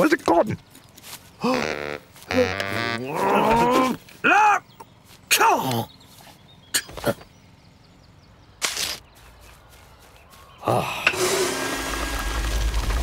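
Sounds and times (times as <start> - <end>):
vacuum cleaner running: 11.1 - 13.0.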